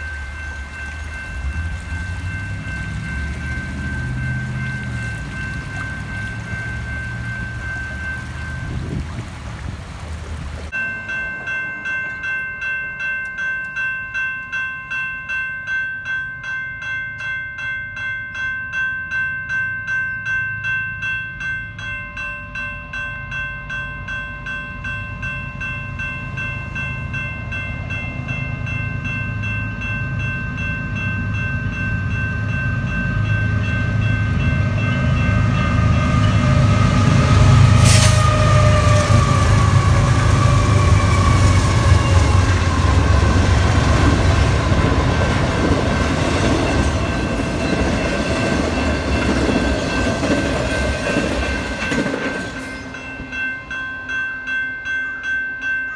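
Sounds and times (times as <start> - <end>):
railroad crossing bell ringing: 0.0 - 9.2, 10.7 - 55.9
freight train passing: 0.0 - 55.9.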